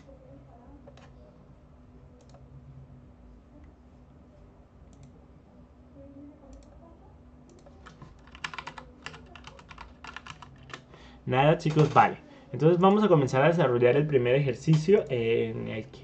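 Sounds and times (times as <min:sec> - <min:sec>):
low steady hum: 0:00.0 - 0:16.0
keyboard typing: 0:07.5 - 0:10.9, 0:11.6 - 0:12.1.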